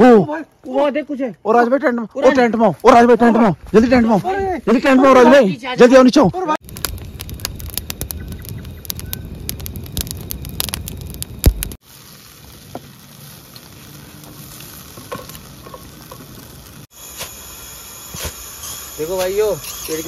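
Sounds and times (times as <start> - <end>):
campfire crackling and popping: 6.6 - 20.0.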